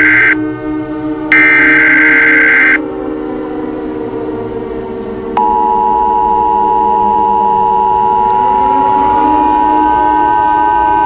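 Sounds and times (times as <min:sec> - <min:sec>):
two-tone alert beep: 0:00.0 - 0:00.4, 0:01.3 - 0:02.8
low steady drone: 0:00.0 - 0:11.0.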